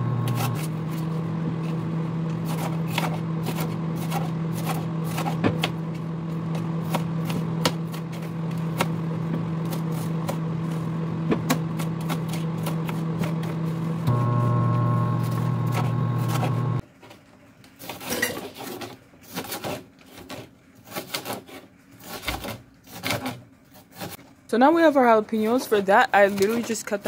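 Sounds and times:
steady low hum: 0.0 - 16.8
knife chopping on wooden board: 2.4 - 5.8, 6.5 - 9.0.

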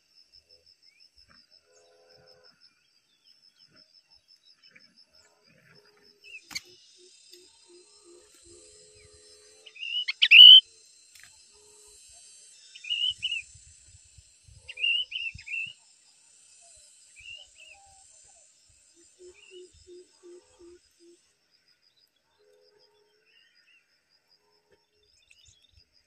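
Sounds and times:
birds chirping: 9.8 - 10.6.

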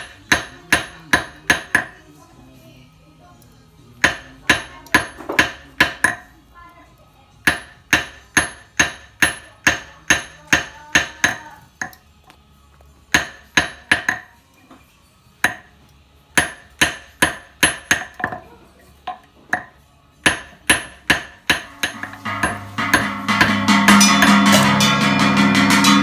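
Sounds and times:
hammer tapping metal on anvil: 0.0 - 2.0, 4.0 - 6.3, 7.4 - 12.0, 13.1 - 14.4, 15.4 - 18.4, 19.0 - 26.0.

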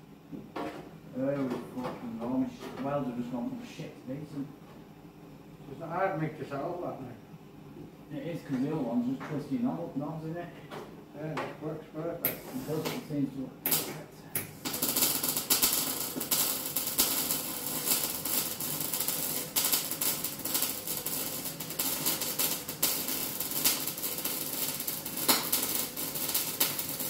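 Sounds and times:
welding arc crackling: 12.2 - 13.0, 13.6 - 27.0.

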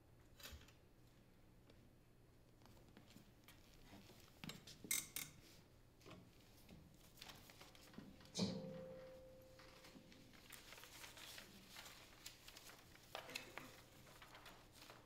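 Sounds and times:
paper rustling: 7.0 - 8.3, 9.0 - 15.0
piano note ringing: 8.4 - 9.9.

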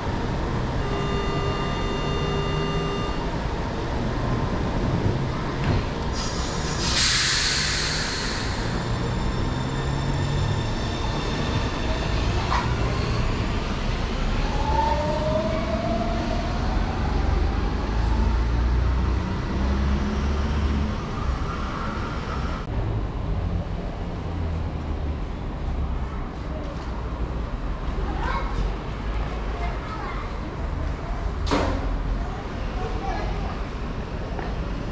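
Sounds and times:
rising train whine: 0.0 - 24.7.

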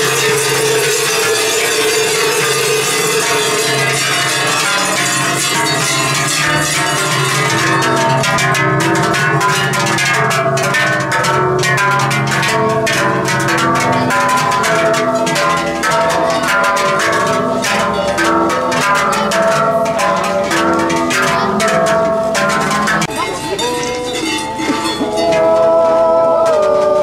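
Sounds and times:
group singing wordless yodel chords: 24.0 - 27.0.

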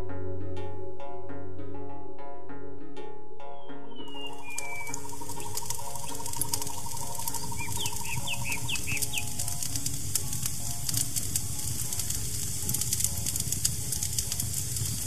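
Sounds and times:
soft ambient music: 0.0 - 15.0
short falling bird chirps: 3.9 - 9.7
high hiss with crackling clicks: 4.1 - 15.0.

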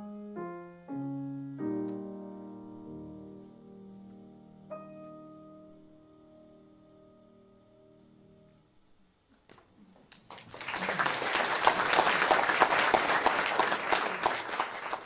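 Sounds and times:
audience applause: 10.1 - 15.0.

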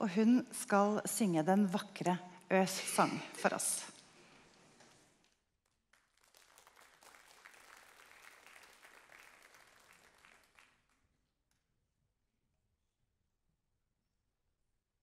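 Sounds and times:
audience applause: 5.9 - 11.0.

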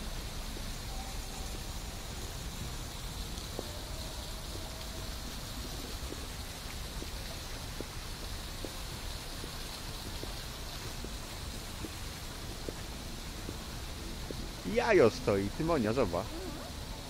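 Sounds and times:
even hiss: 0.0 - 17.0
faint light ticks: 3.1 - 14.5.

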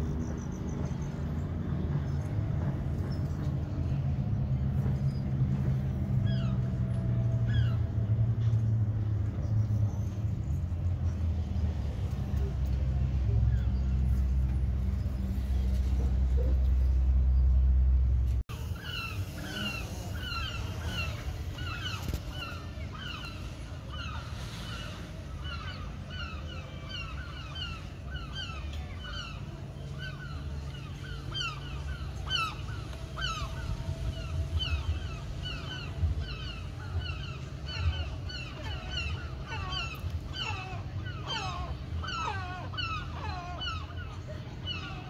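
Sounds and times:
seagulls calling: 0.1 - 9.1, 18.5 - 45.0.

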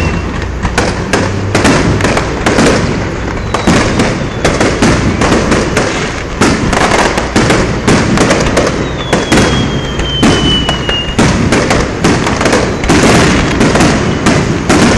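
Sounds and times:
high whistle: 0.0 - 0.4, 3.4 - 4.6, 8.8 - 11.2
fireworks bangs: 0.0 - 14.9
fireworks crackle: 0.0 - 14.9.

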